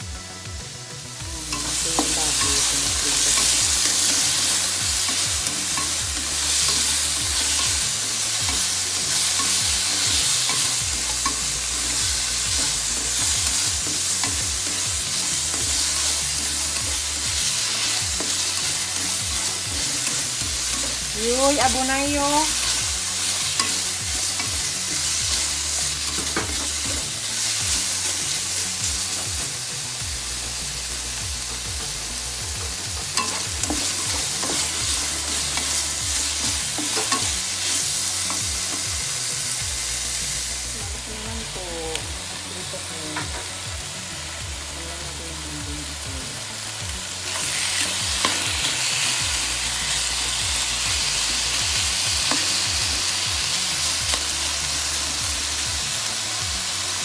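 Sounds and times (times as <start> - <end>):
meat sizzling in a frying pan: 0.0 - 57.0
utensils clicking and scraping pan: 1.5 - 29.5, 33.1 - 39.6, 47.2 - 51.0, 51.7 - 52.8.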